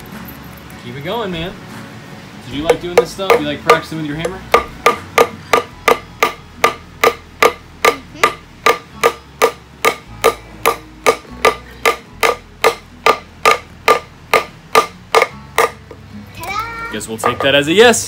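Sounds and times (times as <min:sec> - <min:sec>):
hammer driving nails into wood: 0:02.6 - 0:15.9.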